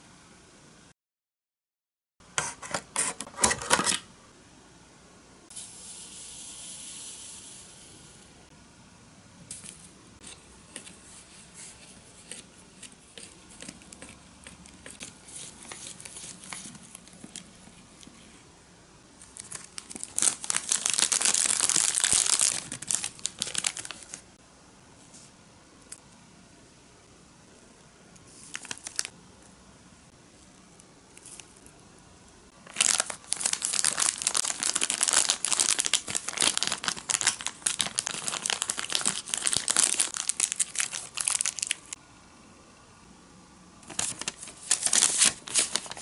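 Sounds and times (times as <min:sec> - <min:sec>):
plastic spoon stirring batter: 0:10.3 - 0:18.2
plastic bag crinkling: 0:19.2 - 0:24.2, 0:28.4 - 0:29.1, 0:32.6 - 0:42.0, 0:43.8 - 0:46.0.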